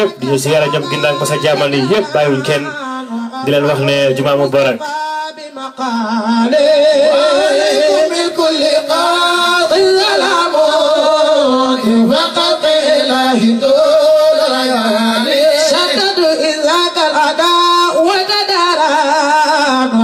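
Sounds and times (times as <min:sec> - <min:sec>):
man singing in chanting style: 0:00.0 - 0:20.0.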